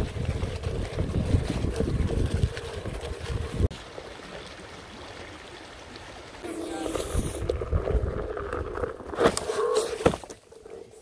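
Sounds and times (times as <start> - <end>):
wind buffeting microphone: 0.0 - 3.7
board riding on dirt trail: 0.0 - 4.5, 6.4 - 11.0
creek water running: 0.0 - 11.0.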